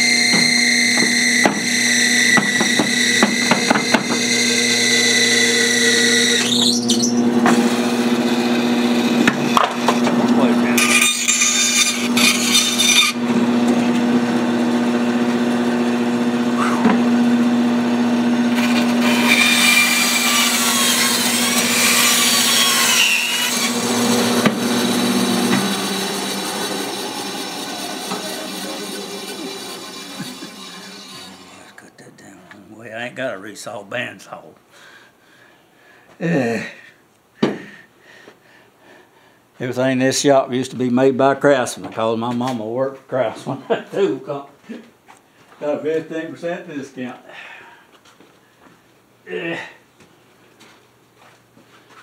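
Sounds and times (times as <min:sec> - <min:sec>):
saw blade rasping through wood: 0:00.0 - 0:13.2, 0:18.5 - 0:31.8
bandsaw humming: 0:00.0 - 0:31.9.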